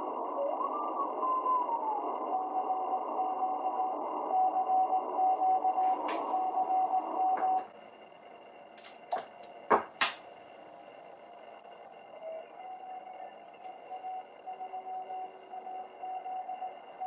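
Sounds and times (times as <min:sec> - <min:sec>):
radio band noise: 0:00.0 - 0:08.6
morse code beep tone: 0:02.2 - 0:07.6
coax connectors clicking: 0:08.7 - 0:10.2.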